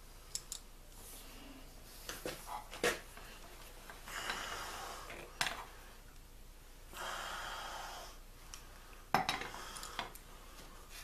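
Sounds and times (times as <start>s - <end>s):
small handling clicks: 0.3s - 0.7s
person breathing out through nose: 9.5s - 11.0s.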